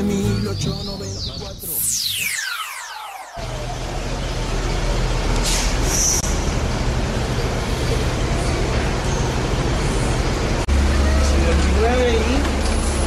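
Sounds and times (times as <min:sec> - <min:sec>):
bus engine humming: 0:00.0 - 0:01.2, 0:03.4 - 0:13.0
air brakes hissing: 0:05.4 - 0:06.6.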